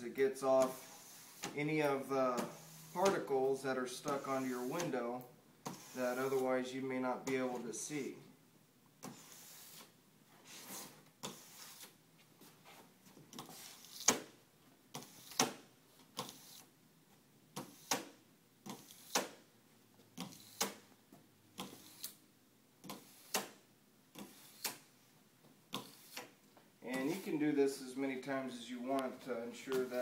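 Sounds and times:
scraper blade on wet glass: 0:21.6 - 0:22.2.

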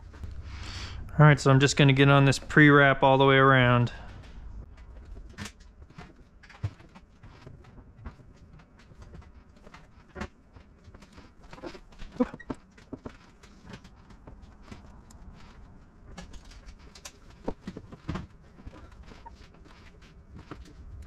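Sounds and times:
squeegee squeaks: 0:11.2 - 0:13.1.

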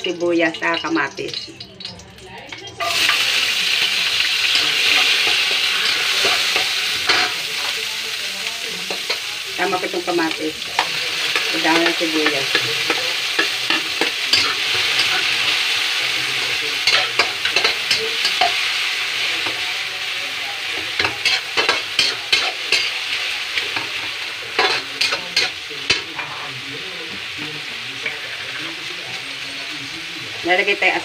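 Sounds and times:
vegetables sizzling in hot oil: 0:00.0 - 0:31.0.

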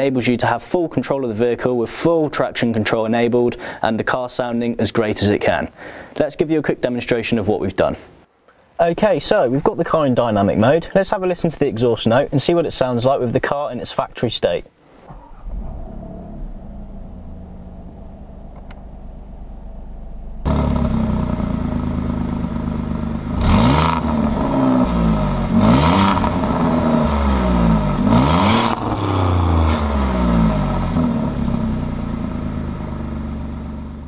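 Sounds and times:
car engine idling and revving: 0:15.1 - 0:34.0.

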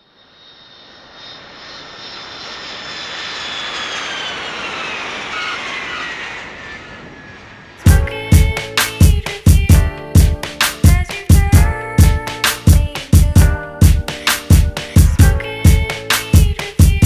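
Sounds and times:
engine whine sliding down: 0:00.0 - 0:09.3
jet aircraft flying over: 0:00.0 - 0:17.0.

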